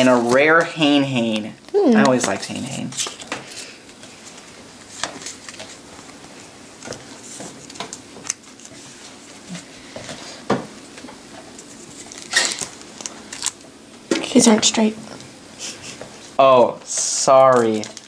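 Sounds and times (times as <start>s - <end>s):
cards taps and rustles: 1.3s - 8.7s.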